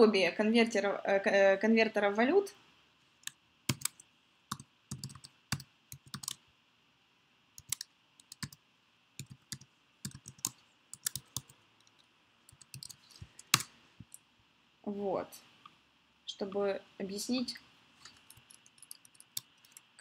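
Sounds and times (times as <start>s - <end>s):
typing on computer keyboard: 3.7s - 6.4s, 7.6s - 8.6s, 9.2s - 13.7s, 18.1s - 19.9s.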